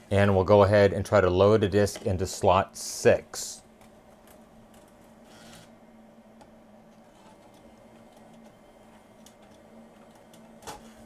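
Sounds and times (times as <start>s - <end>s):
cd changer motor whir: 3.6s - 11.0s.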